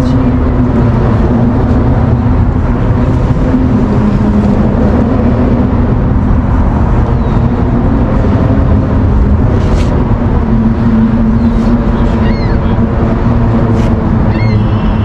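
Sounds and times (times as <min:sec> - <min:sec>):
engine motor drone: 0:00.0 - 0:15.0.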